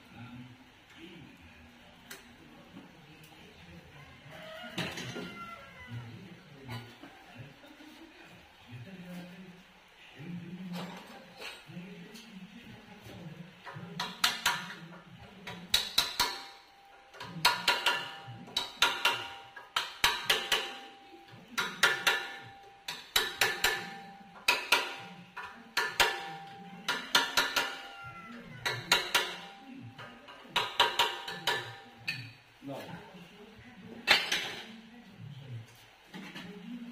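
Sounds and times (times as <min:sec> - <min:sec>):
hammer striking steel: 0:15.7 - 0:28.0, 0:28.6 - 0:29.6, 0:30.6 - 0:32.3.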